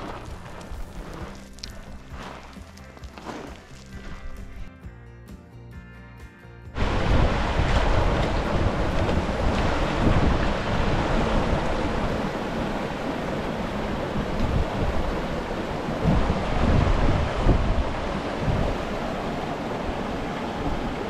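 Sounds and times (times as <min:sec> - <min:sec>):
wind buffeting microphone: 0:00.0 - 0:02.6, 0:06.8 - 0:21.0.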